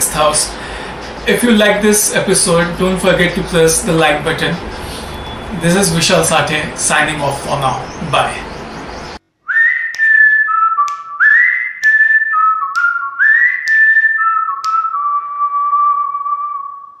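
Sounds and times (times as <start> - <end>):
whistled jingle tune: 9.5 - 17.0.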